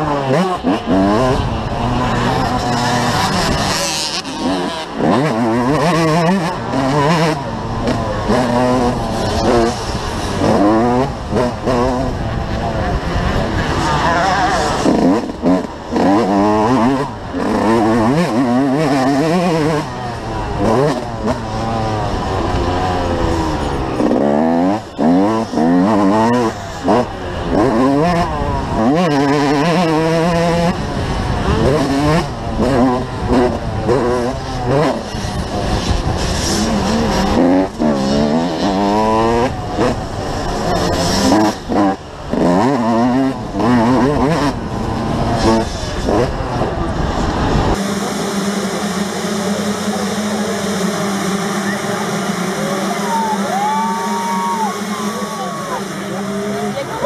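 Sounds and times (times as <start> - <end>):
motocross bike engine revving: 0.0 - 57.0.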